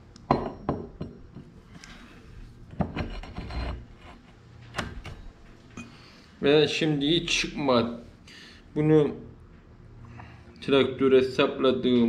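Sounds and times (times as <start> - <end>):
scraping and rubbing: 3.0 - 4.5.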